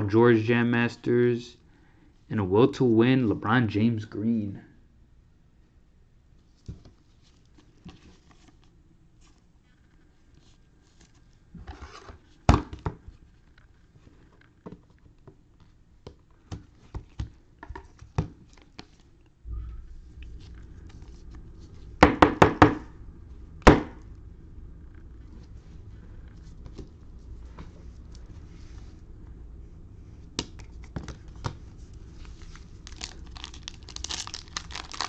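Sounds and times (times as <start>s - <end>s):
cellophane wrappers handled: 30.5s - 35.0s.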